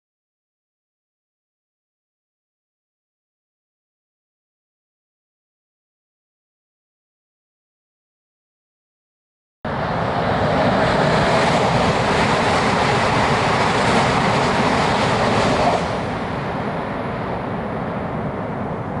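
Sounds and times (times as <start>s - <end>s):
train running: 9.7s - 19.0s.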